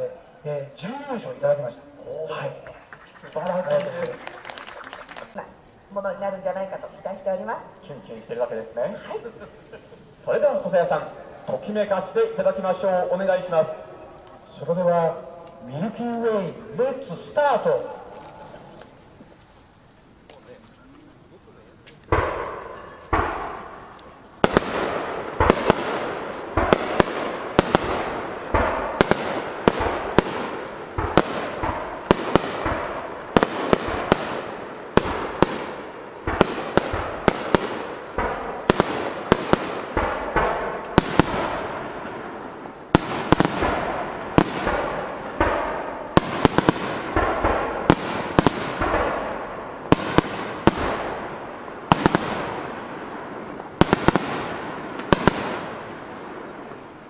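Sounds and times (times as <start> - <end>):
fireworks shells bursting: 2.6 - 5.8, 22.0 - 57.0.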